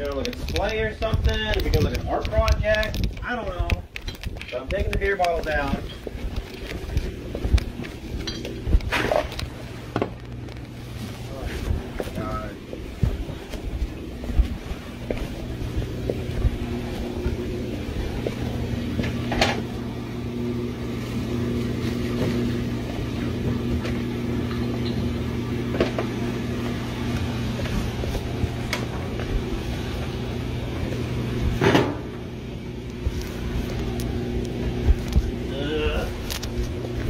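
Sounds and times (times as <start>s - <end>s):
electric motor humming: 0.0s - 37.0s
appliance stopping with a clunk: 31.5s - 32.2s.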